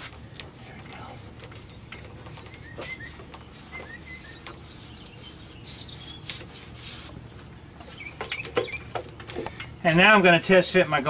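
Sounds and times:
hands rubbing rubber molding: 0:01.2 - 0:07.1.

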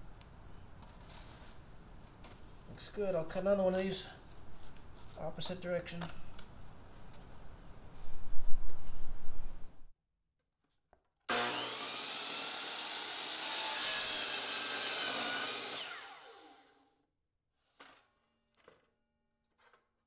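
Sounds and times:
saw blade winding down: 0:11.3 - 0:16.7
miter saw cutting plastic: 0:11.3 - 0:16.8.

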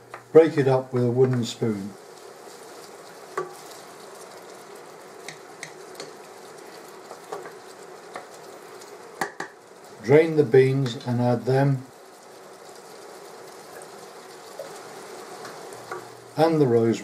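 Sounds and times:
wooden spoon stirring meat: 0:00.0 - 0:16.2
meat sizzling in a pan: 0:00.0 - 0:17.0.

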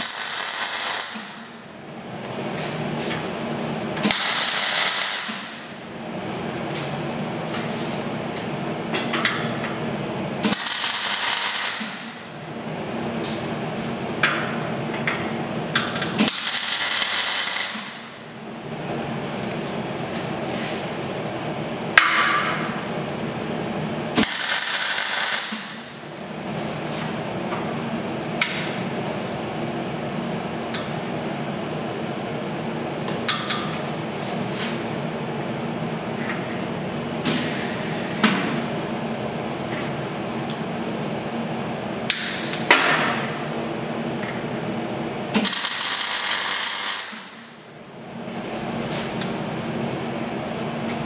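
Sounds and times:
welding arc crackling and hissing: 0:00.0 - 0:01.6, 0:04.0 - 0:05.6, 0:10.4 - 0:12.2, 0:16.2 - 0:18.1, 0:24.2 - 0:25.8, 0:45.4 - 0:47.4
steady hum: 0:00.0 - 0:51.0.

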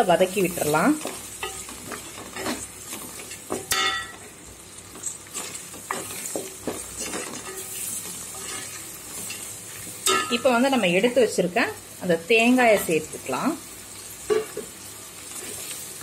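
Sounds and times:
food sizzling in oil: 0:00.0 - 0:16.0
spatula scraping pot: 0:05.3 - 0:09.5.

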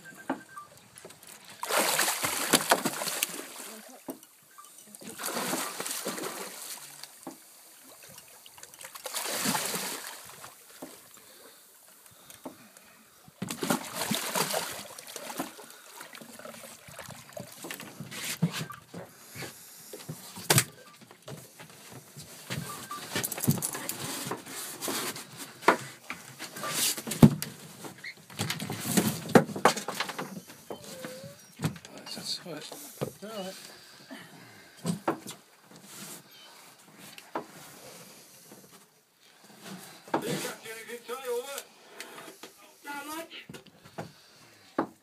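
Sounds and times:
water splashing: 0:01.2 - 0:11.4, 0:13.4 - 0:18.8.

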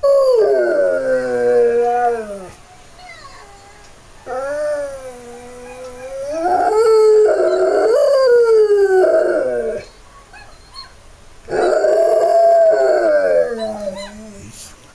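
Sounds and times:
dog howling: 0:00.0 - 0:02.6, 0:04.2 - 0:09.9, 0:11.5 - 0:14.6.

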